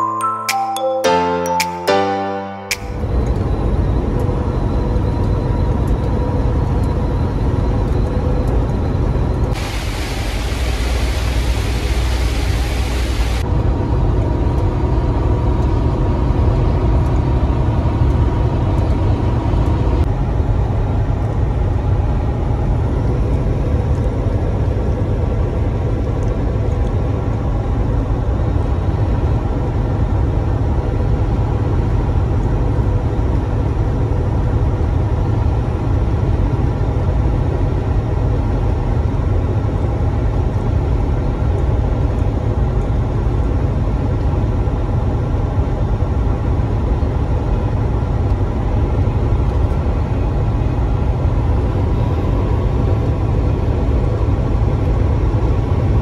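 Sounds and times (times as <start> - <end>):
truck engine and road rumble: 2.9 - 56.0
loud hiss: 9.6 - 13.4.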